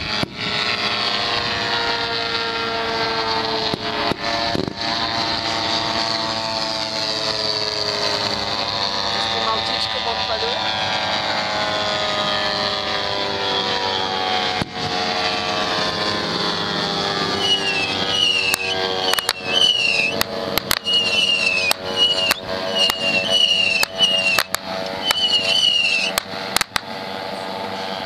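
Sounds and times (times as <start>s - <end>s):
model aircraft engines droning: 0.0s - 28.0s
pyrotechnic bangs with falling whistle: 17.3s - 26.2s.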